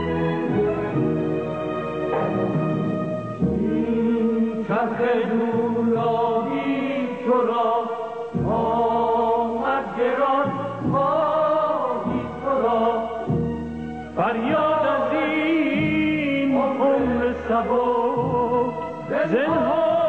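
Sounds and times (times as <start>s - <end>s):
instrumental accompaniment: 0.0s - 4.7s
man singing: 3.6s - 13.3s, 14.2s - 20.0s.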